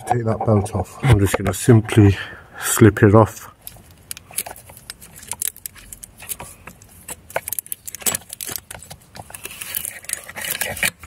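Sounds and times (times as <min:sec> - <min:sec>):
small clicks and rattles of belt: 0:03.6 - 0:11.0.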